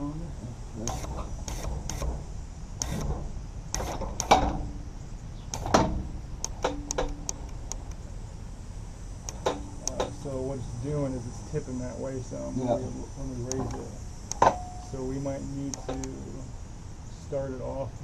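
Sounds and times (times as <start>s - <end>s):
short steady hums: 0.0s - 17.2s
metallic clicks and knocks: 2.8s - 4.7s, 5.5s - 8.0s, 9.2s - 10.2s.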